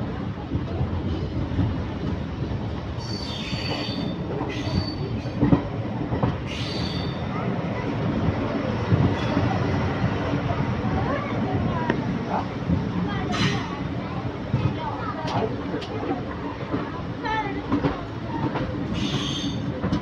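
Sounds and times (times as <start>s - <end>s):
train rumbling on rails: 0.0s - 20.0s
train wheels squealing: 3.0s - 5.4s, 6.5s - 7.2s, 18.9s - 19.7s.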